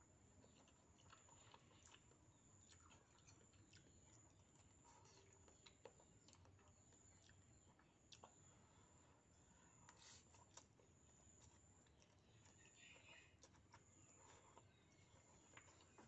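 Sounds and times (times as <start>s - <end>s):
chewing and slurping noodles: 0.4s - 8.8s.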